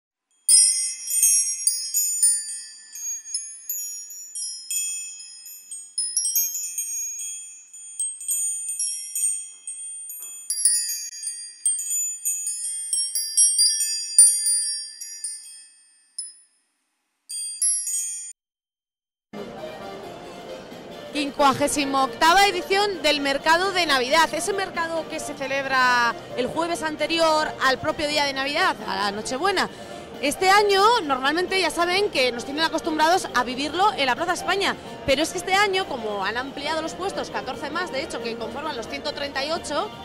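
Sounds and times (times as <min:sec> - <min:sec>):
wind chimes tinkling: 0:00.5 - 0:16.6, 0:17.3 - 0:18.4.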